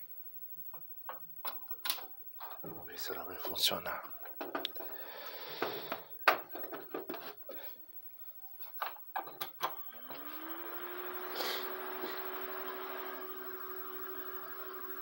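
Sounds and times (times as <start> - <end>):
computer fans whirring: 9.4 - 15.0.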